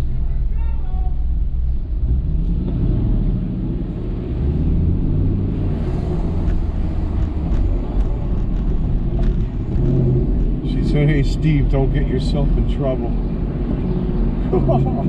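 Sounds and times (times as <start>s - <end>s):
car engine rumble: 0.0s - 15.0s
road noise: 0.0s - 15.0s.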